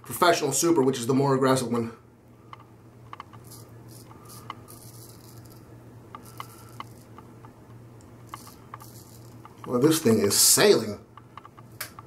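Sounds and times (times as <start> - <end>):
faint low hum: 0.0 - 12.0
razor scraping beard stubble: 3.3 - 7.2, 8.3 - 9.8.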